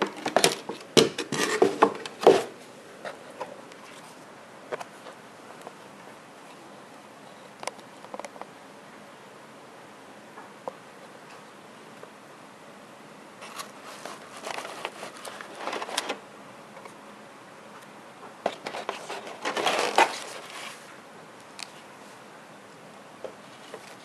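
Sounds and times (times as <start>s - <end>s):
plastic packaging crinkling: 13.4s - 16.2s, 18.5s - 20.9s.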